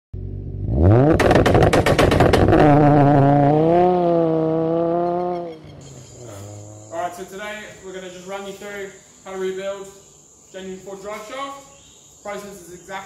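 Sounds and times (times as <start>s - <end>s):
engine revving: 0.2s - 7.8s
rapid sharp bangs: 1.2s - 2.6s.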